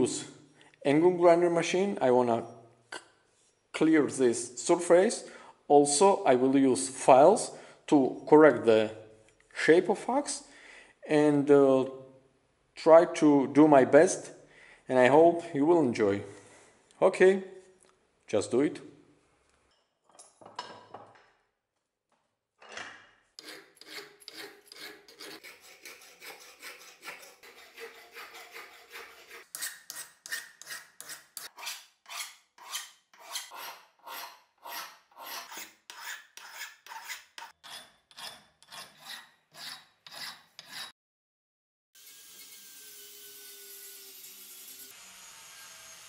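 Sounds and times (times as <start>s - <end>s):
file rasping on steel: 23.4s - 41.0s.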